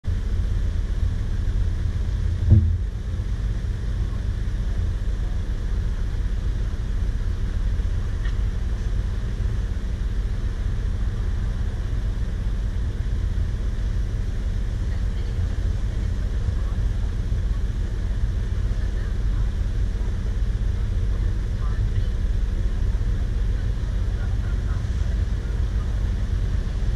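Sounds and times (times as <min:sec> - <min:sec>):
vehicle rumbling on the move: 0:00.0 - 0:26.9
thump: 0:02.5 - 0:02.9.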